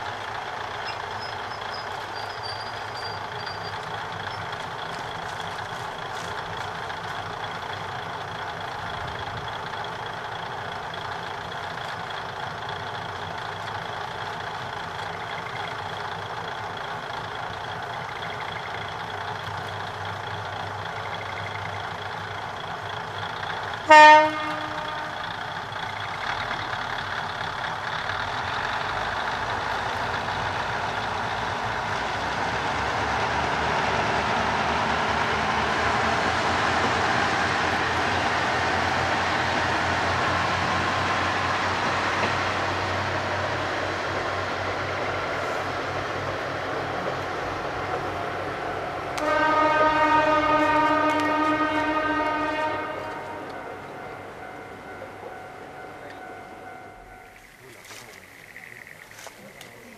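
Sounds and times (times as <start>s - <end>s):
diesel railcar engine running: 0.0s - 59.9s
train horn blast: 23.8s - 25.3s, 49.2s - 53.9s.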